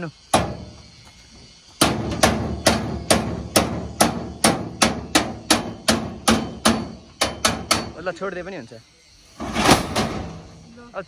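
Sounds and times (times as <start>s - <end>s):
hammer striking sheet metal: 1.8s - 8.0s.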